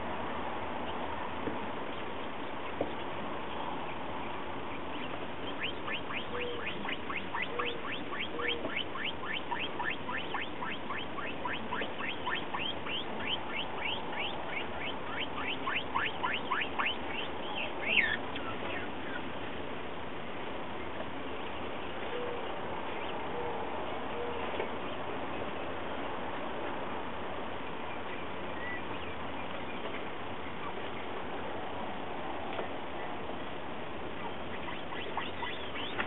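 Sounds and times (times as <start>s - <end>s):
quail calling: 5.4s - 19.4s, 34.1s - 36.0s.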